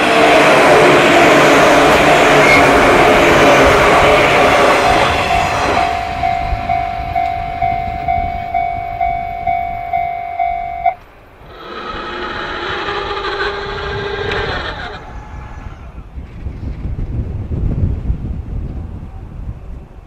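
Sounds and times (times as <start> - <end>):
electric train running: 0.0 - 15.0
level-crossing alarm pulsing tone: 0.2 - 11.0.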